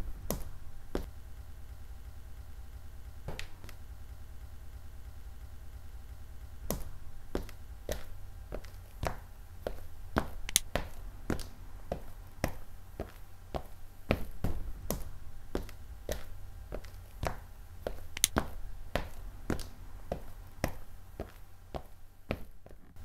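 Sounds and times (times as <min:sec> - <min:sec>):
low rumble: 0:00.0 - 0:08.6, 0:09.2 - 0:21.6
sharp clicks and taps: 0:10.4 - 0:11.5, 0:18.2 - 0:18.5.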